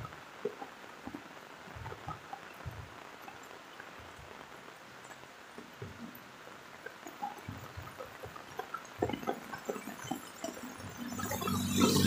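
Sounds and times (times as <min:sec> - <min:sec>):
close taps of raindrops: 0:00.0 - 0:11.4
rain falling: 0:00.0 - 0:12.0.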